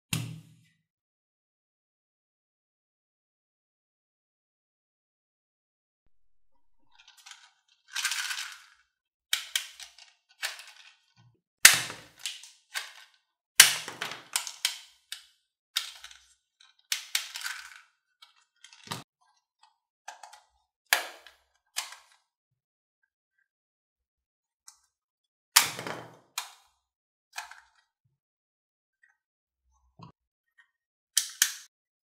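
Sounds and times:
plastic toy pistols clicking: 9.4s - 10.9s, 31.2s - 31.7s.

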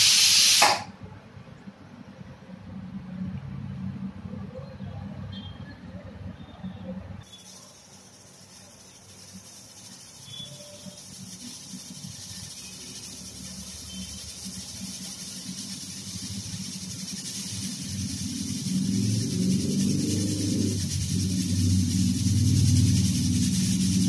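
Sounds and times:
pressure cooker hissing: 0.0s - 0.9s, 7.2s - 24.0s
gas burner rumble: 10.2s - 24.0s.

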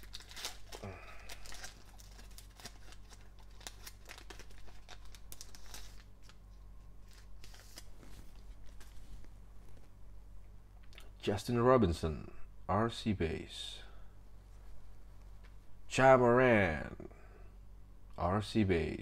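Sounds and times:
foil wrapper tearing and crinkling: 0.0s - 6.4s, 7.0s - 8.0s.

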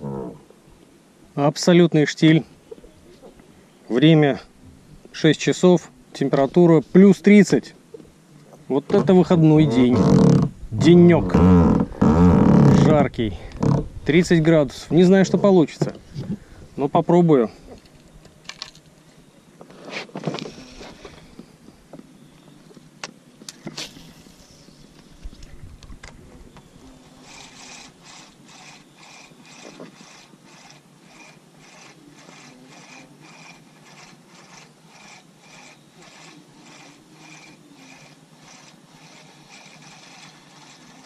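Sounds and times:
fishing reel ticking: 27.2s - 41.0s.

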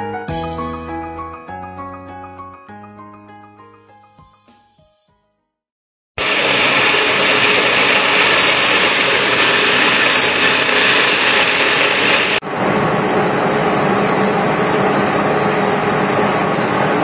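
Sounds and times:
different machine noise: 6.2s - 17.0s
machine running: 6.2s - 17.0s.

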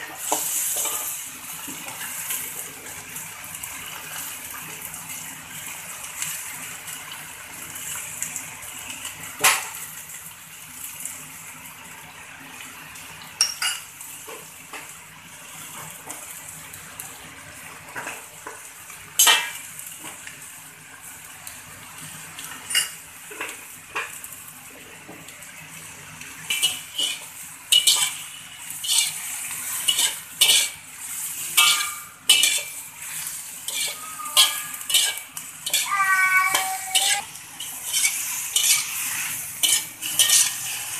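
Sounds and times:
frying sizzle: 0.0s - 40.9s
metal spatula scraping a wok: 0.2s - 1.2s, 26.5s - 40.9s.

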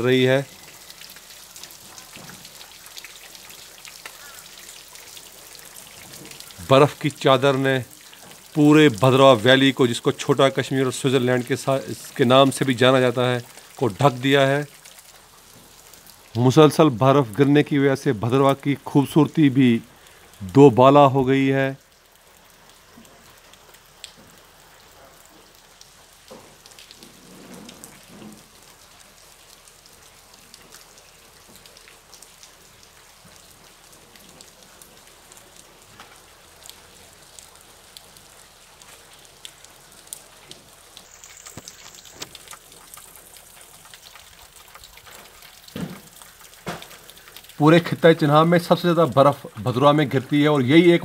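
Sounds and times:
snow pattering on surfaces: 30.4s - 51.0s.

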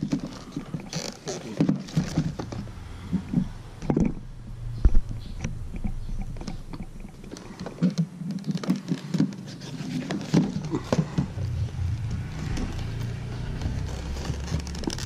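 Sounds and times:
cardboard box rustling: 0.0s - 2.7s, 7.2s - 15.0s.

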